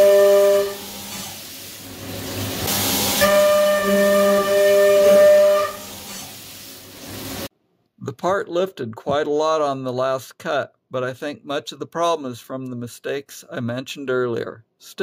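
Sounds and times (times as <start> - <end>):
coolant hiss: 0.0 - 7.5.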